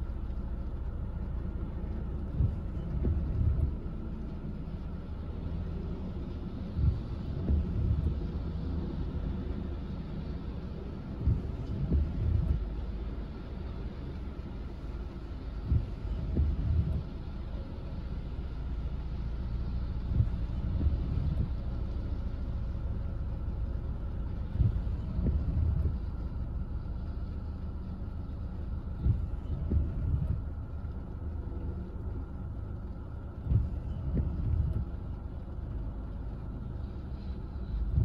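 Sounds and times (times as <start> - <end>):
car engine idling: 0.0 - 38.0
windshield wipers thumping: 1.3 - 10.0, 10.6 - 17.9, 18.5 - 22.0, 24.0 - 27.6, 28.4 - 38.0.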